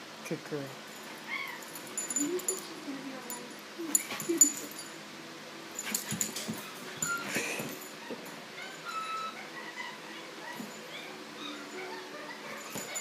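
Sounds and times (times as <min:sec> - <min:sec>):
dog whining: 0:01.1 - 0:02.6, 0:06.0 - 0:13.0.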